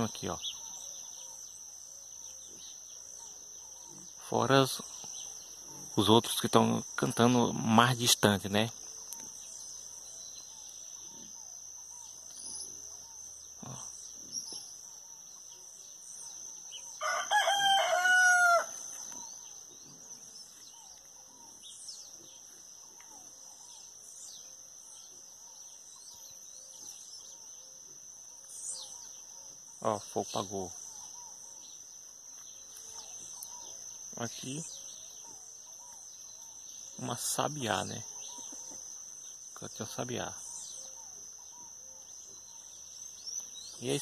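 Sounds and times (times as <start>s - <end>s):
small birds chirping: 0.0s - 44.0s
rooster crowing: 17.0s - 18.9s.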